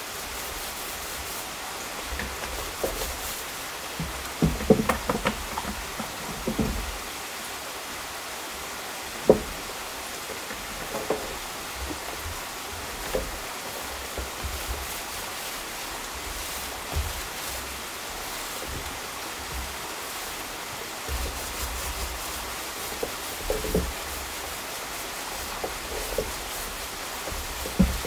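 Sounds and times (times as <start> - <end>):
paint roller knocking on bucket: 0.0 - 7.2, 9.0 - 28.0
stream rushing: 0.0 - 28.0.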